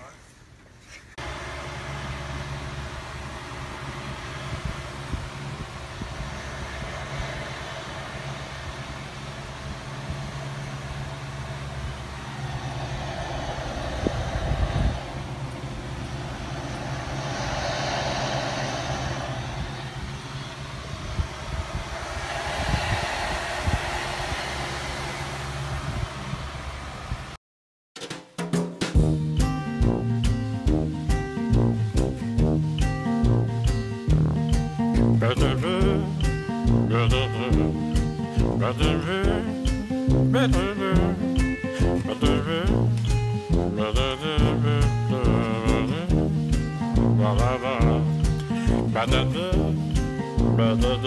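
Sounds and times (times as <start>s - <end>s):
vehicle engine and road noise: 1.2s - 27.4s.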